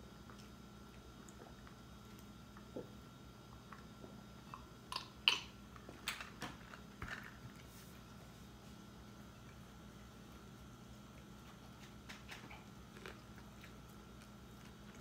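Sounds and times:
faint steady hum: 0.0s - 15.0s
chewing: 10.3s - 15.0s.

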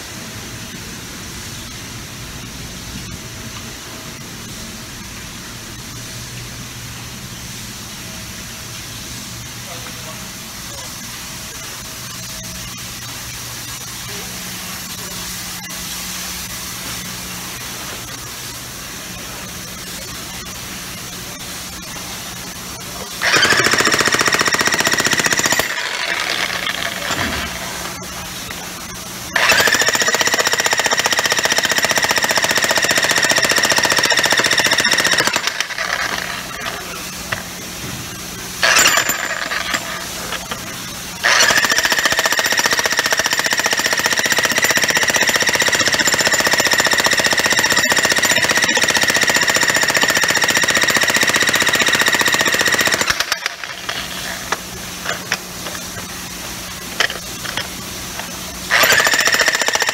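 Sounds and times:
electric breaker hammer hammering: 23.2s - 28.0s, 29.3s - 36.7s, 38.6s - 40.6s, 41.2s - 55.8s, 58.7s - 59.9s.

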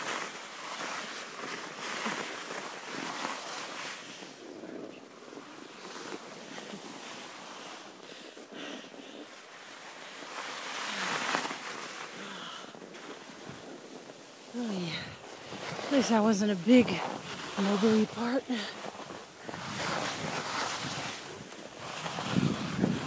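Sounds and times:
skis scraping over packed snow: 0.0s - 23.0s
wind rushing over microphone: 12.6s - 23.0s.

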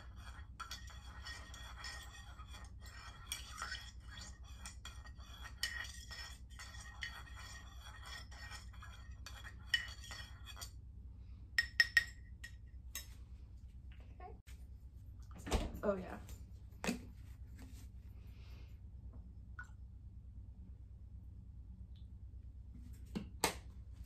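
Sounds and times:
knife stirring coffee in mug: 0.0s - 10.8s, 11.6s - 13.1s
low steady hum: 0.0s - 24.0s.

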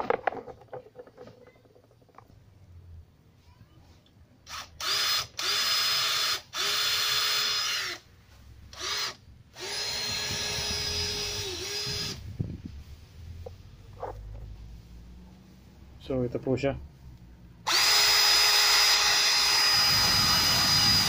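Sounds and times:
cordless drill whining: 4.5s - 8.0s, 8.7s - 12.2s, 17.7s - 21.0s.

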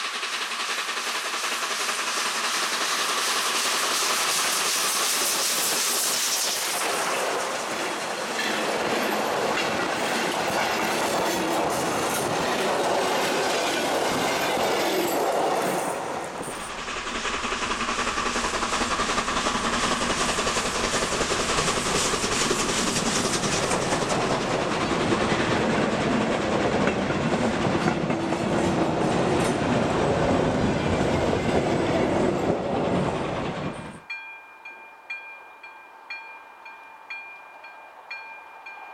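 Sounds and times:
train wheels clattering over rail joints: 0.0s - 34.0s.

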